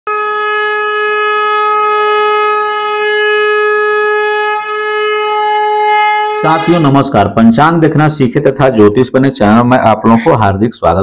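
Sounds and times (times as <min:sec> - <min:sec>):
conch shell blown: 0:00.1 - 0:07.0.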